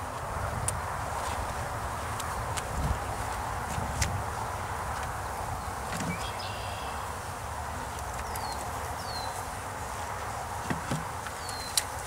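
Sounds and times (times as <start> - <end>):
honeybees buzzing: 0.0 - 12.0
light wooden knocks: 10.6 - 11.6.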